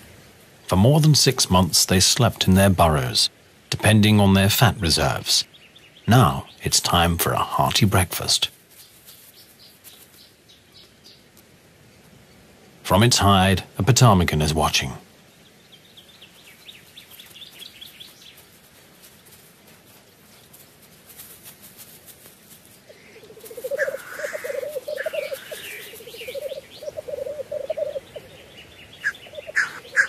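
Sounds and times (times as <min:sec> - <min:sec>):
small birds twittering: 0:04.8 - 0:12.6, 0:14.6 - 0:19.5, 0:22.6 - 0:30.0
grouse bubbling cooing song: 0:22.9 - 0:30.0.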